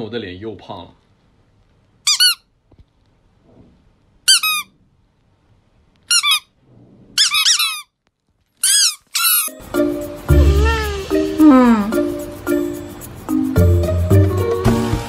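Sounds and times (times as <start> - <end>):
toy squeaks: 2.1 - 2.5, 4.3 - 4.7, 6.1 - 6.5, 7.2 - 7.9, 8.6 - 9.6, 10.4 - 12.0.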